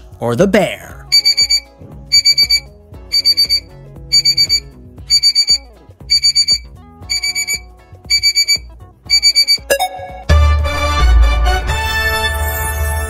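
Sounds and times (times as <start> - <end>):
background music with bass line: 0.0 - 13.0
alarm clock beeping: 1.1 - 10.3.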